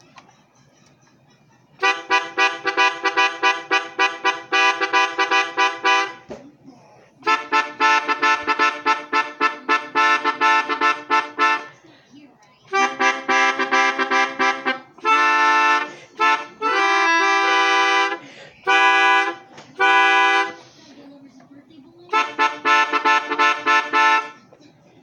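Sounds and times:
melodica short notes: 1.8 - 6.3, 7.2 - 11.8, 12.7 - 20.8, 22.1 - 24.5.

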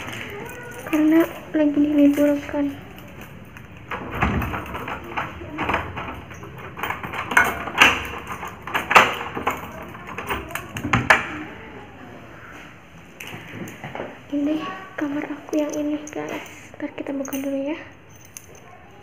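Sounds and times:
key unlocking door lock: 0.0 - 11.4
metal door handle rattling: 0.0 - 11.4.

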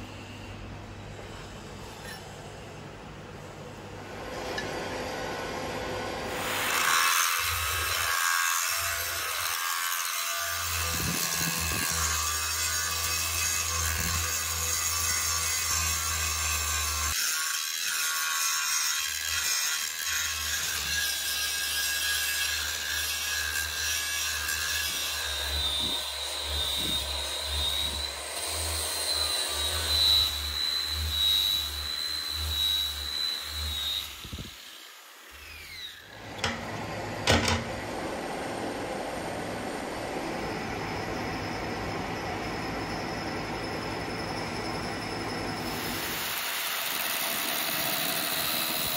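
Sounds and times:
metal grinding hiss: 6.3 - 36.6
thin high whine: 36.2 - 46.5.

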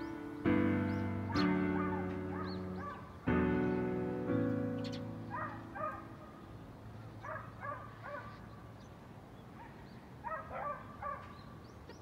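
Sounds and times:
faint high bird chirps: 4.7 - 8.9.

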